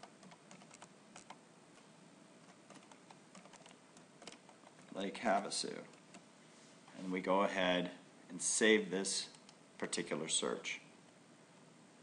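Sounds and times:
faint keyboard typing: 0.0s - 6.3s, 9.2s - 9.6s.

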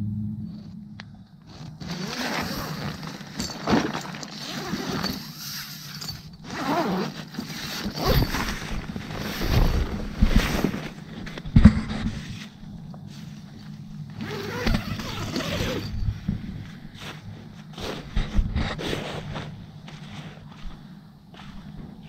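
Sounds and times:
tent zipper being pulled open: 1.5s - 11.5s, 14.2s - 16.0s, 17.0s - 19.6s
tent fabric rustling: 1.5s - 20.8s.

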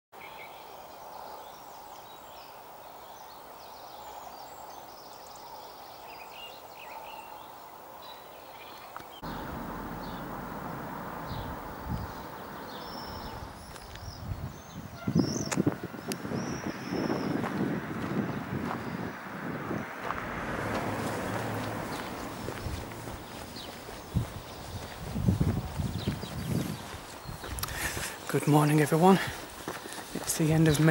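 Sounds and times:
birds singing and chirping: 3.1s - 30.9s
uneven low rumble: 9.2s - 14.5s.

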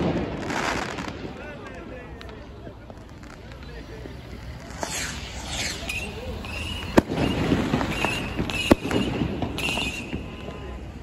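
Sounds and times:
firecracker bangs: 0.0s - 1.6s, 4.5s - 11.0s
fireworks crackling: 0.0s - 11.0s
whistling fireworks: 0.0s - 11.0s.

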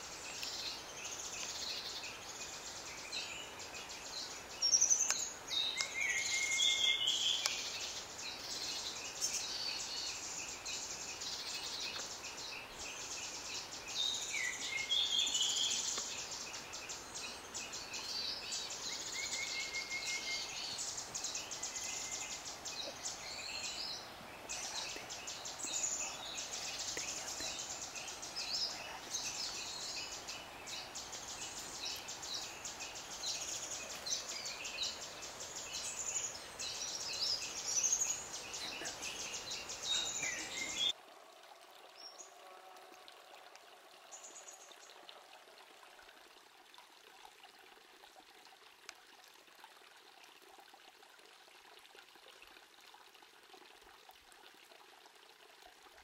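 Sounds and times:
birds chirping and whistling: 37.9s - 40.9s.

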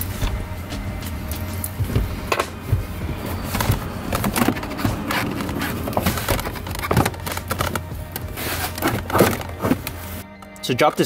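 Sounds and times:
background music: 0.0s - 11.0s
plastic panel knocking and rattling: 3.5s - 8.2s, 8.8s - 9.8s.

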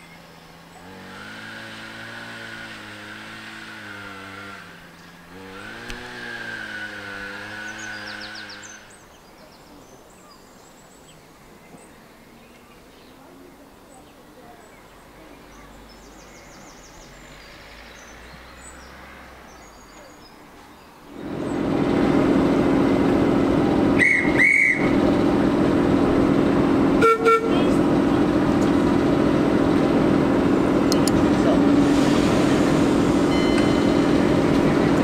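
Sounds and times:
diesel locomotive engine running: 0.0s - 9.0s, 21.1s - 35.0s
high whistle blasts: 24.0s - 25.0s
train horn toot: 27.0s - 27.8s.

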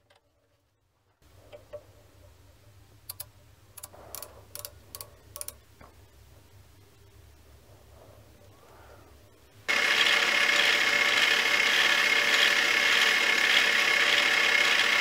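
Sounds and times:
faint low hum: 0.0s - 9.7s
micrometer ratchet clicks: 3.1s - 5.6s.

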